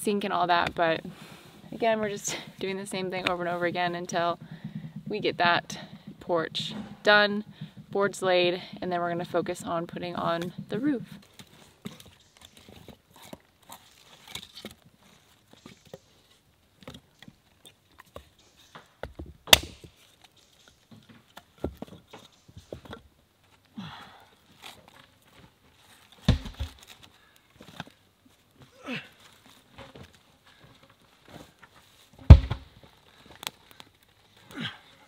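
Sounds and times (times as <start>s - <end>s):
sharp crack of wood: 16.8s - 23.0s, 26.1s - 28.0s, 32.2s - 34.1s.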